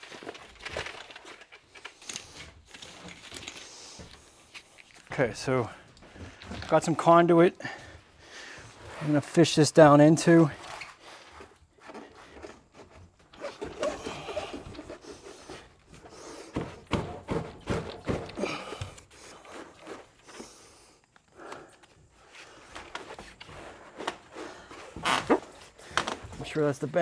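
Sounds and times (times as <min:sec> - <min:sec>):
pipes scraping in conduit: 0:08.4 - 0:16.5
knocks against wooden framing: 0:16.5 - 0:18.6.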